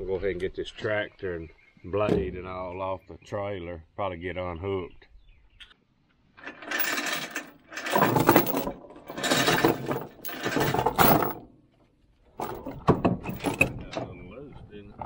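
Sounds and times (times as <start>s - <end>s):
chain rattling and clinking: 6.4s - 11.5s, 12.4s - 13.8s.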